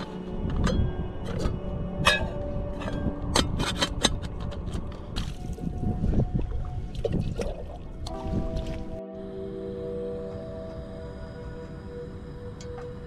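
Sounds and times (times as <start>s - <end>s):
metal camping pots clinking: 0.0s - 5.6s
water splashing and draining: 5.2s - 9.0s.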